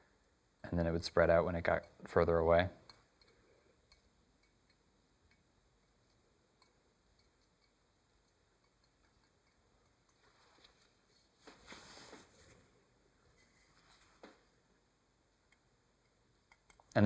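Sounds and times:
handling rustle: 10.2 - 14.6.

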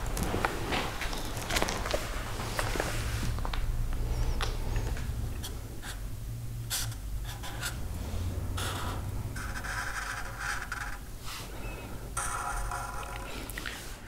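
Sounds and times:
marker scratching on paper: 5.4 - 6.0, 6.7 - 7.8, 8.5 - 11.1.

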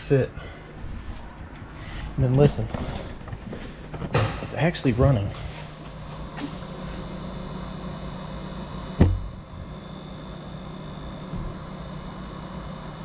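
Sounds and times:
refrigerator compressor humming: 0.0 - 13.0
sharp thump: 9.0 - 9.3.

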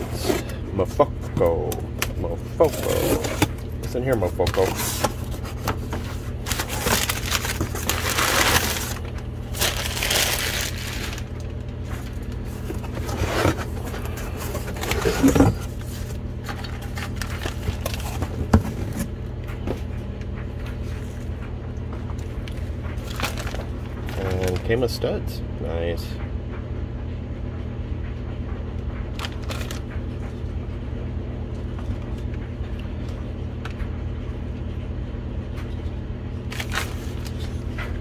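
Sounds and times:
steady low hum: 0.0 - 38.0
packing paper rustling and crumpling: 2.1 - 19.1, 22.2 - 24.8, 29.2 - 30.0, 36.5 - 38.0
handling scrapes: 11.9 - 19.0.

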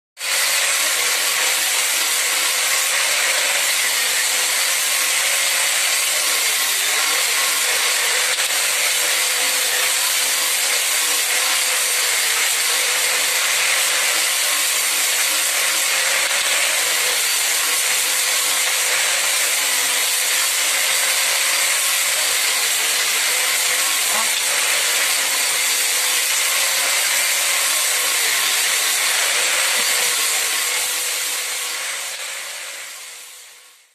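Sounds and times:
angle grinder cutting: 0.2 - 33.9.

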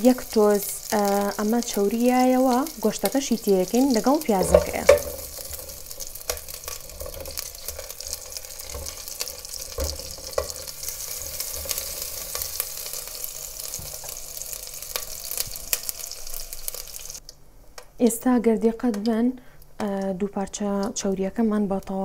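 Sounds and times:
fat sizzling in oil: 0.0 - 17.2
wooden spoon knocking against pot: 4.4 - 5.3.

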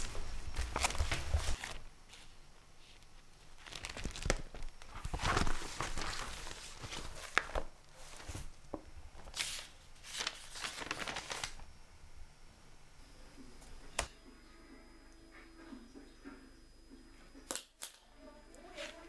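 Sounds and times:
paper pages rustling: 0.0 - 11.7.

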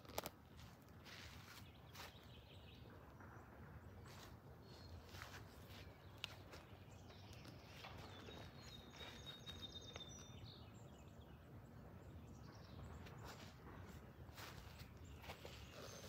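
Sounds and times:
footsteps on grass: 0.5 - 2.7, 4.0 - 9.8, 13.0 - 16.0
faint high bird trill: 7.2 - 10.7.

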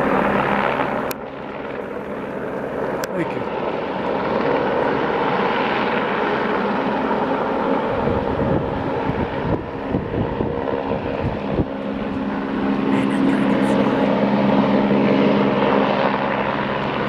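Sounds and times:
helicopter hovering: 0.0 - 17.0
gusty rumble: 7.8 - 12.7.

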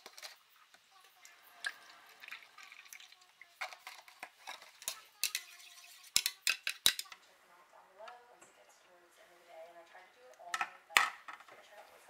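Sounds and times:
milk pouring into plastic cup: 1.1 - 4.4.

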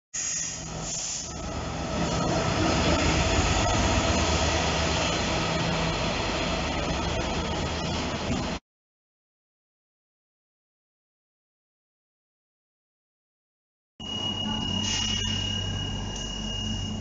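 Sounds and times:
diesel locomotive engine: 0.2 - 8.6, 14.0 - 17.0.

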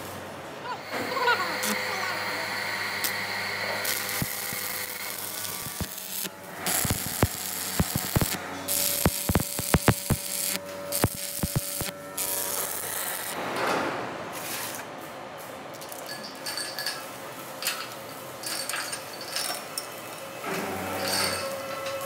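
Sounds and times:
machinery humming: 0.0 - 13.5.

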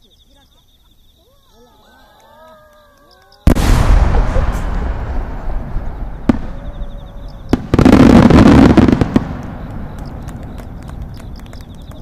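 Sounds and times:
sharp cracks: 2.7 - 12.0
firework burst rumbling echo: 3.4 - 12.0
loud rolling boom: 3.5 - 12.0.

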